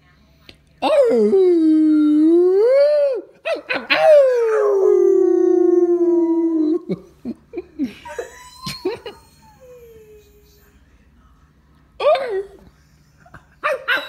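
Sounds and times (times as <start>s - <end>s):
dog howling: 0.8s - 6.9s.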